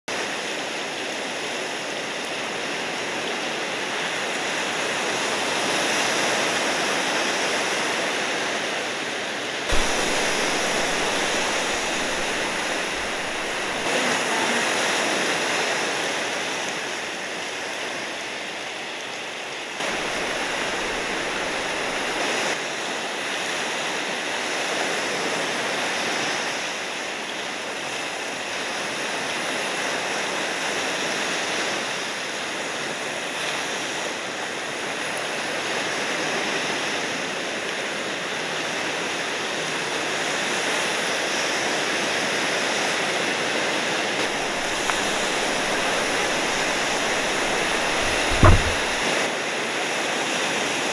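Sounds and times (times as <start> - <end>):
ocean surf rushing: 9.7 - 17.1, 19.8 - 26.7, 44.2 - 49.4.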